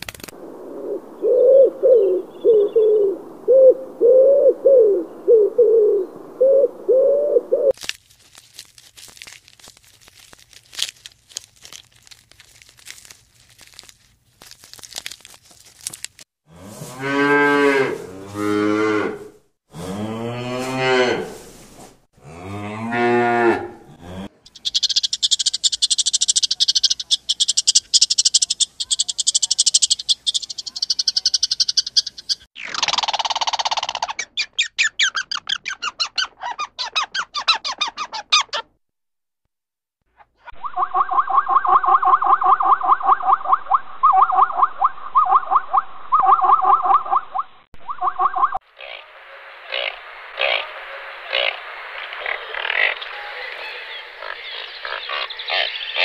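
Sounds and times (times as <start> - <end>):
pigeon cooing: 0.7 - 7.7
cattle mooing: 16.5 - 21.4, 22.2 - 24.3
high-pitched chirping trill: 24.5 - 32.5.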